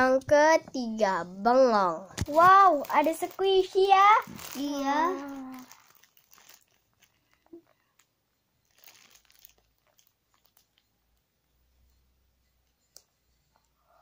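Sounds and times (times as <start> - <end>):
plastic bags crinkling: 2.2 - 11.2.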